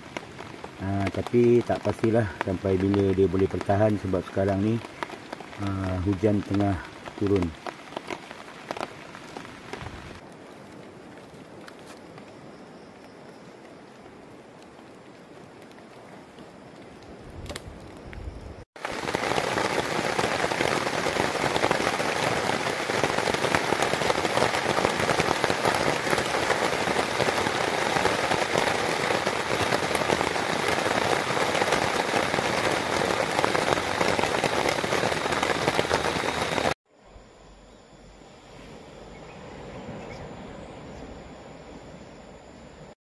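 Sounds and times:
heavy rain on tarp: 0.0s - 12.3s, 18.7s - 36.8s.

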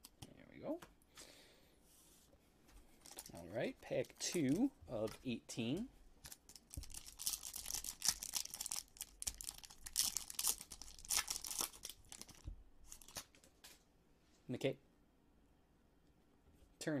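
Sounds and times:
foil wrapper tearing and crinkling: 6.3s - 13.3s.

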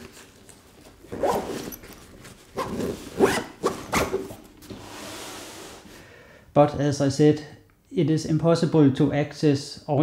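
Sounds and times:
fabric rustle: 0.0s - 5.9s
backpack zipper pulled shut: 1.1s - 1.8s, 2.5s - 4.4s.

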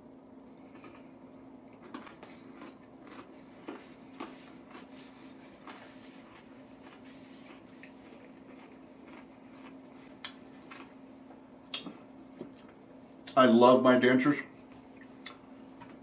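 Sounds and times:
steady low hum: 0.0s - 16.0s
crispy chicken being chewed: 0.4s - 13.3s.

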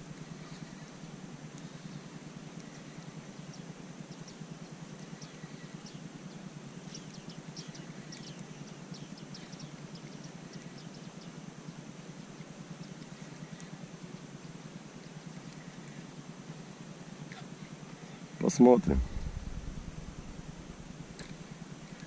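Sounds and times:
small birds chirping: 0.0s - 11.4s
steady low rumble: 18.6s - 22.0s.

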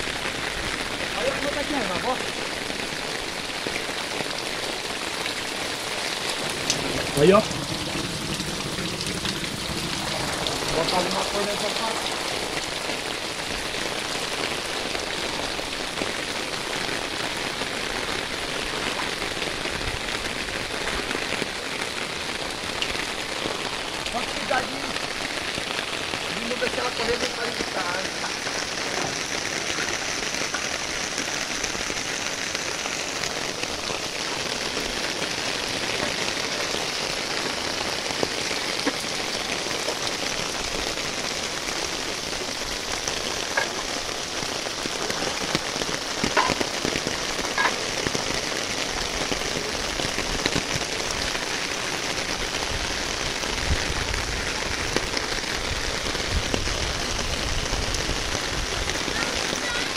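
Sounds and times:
heavy rain on standing water: 0.0s - 59.9s
low rumble: 6.5s - 10.9s.

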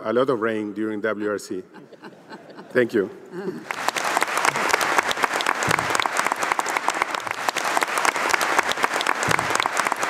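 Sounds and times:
large audience applauding: 3.4s - 10.0s.

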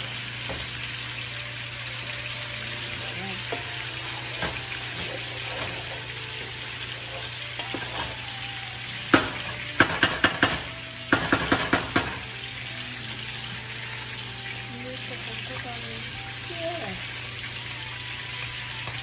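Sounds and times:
cooking sizzle: 0.0s - 19.0s
spatula stirring leaves in pot: 3.1s - 8.4s
spatula knocking against pot: 9.1s - 12.3s.

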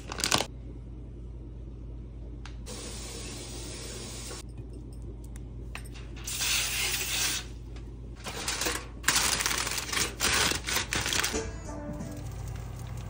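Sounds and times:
aluminum foil crinkling: 0.0s - 0.5s, 8.2s - 11.5s.

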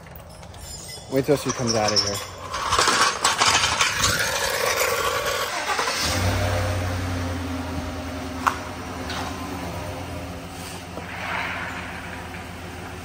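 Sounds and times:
truck engine idling: 5.2s - 13.0s.

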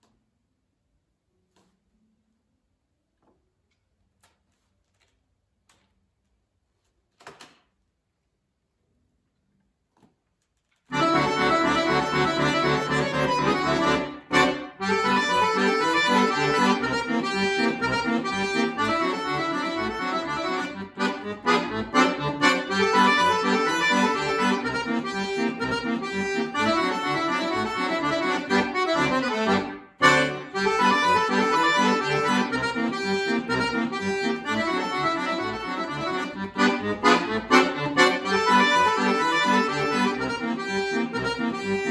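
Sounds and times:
button accordion playing: 10.9s - 41.9s.

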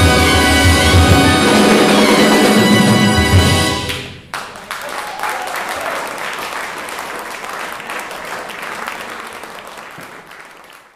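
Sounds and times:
big band final chord: 0.0s - 4.2s
audience applauding: 3.8s - 10.9s.

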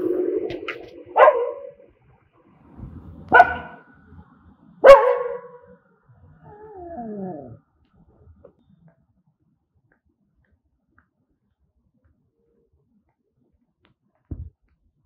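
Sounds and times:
steady low tone: 0.0s - 7.6s
dogs barking: 1.1s - 1.8s, 3.3s - 3.8s, 4.8s - 5.6s
dog whining: 6.4s - 7.6s.

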